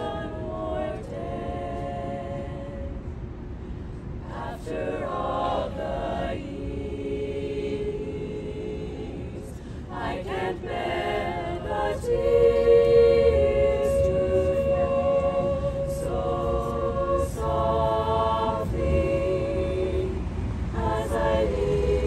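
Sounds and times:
a cappella vocal ensemble: 0.0 - 22.0.

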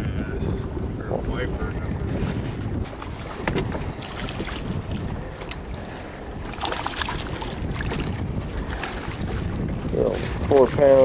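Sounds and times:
wind buffeting microphone: 0.0 - 11.0
fish splashing at surface: 6.6 - 8.1.

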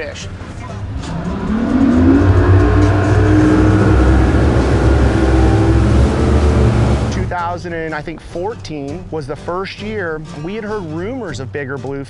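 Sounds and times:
outboard boat engine: 0.0 - 8.4.

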